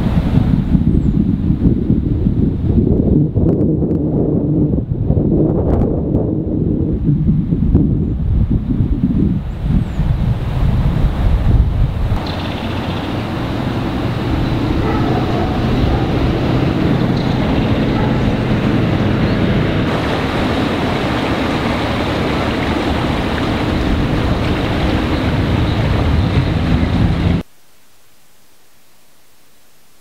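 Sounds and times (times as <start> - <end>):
river water rushing: 12.2 - 27.4
faint hiss: 27.4 - 30.0.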